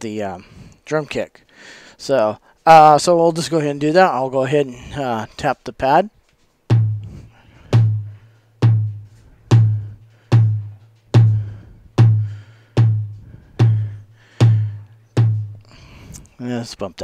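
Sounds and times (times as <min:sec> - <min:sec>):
electronic kick drum thumps: 0:06.7 - 0:15.7.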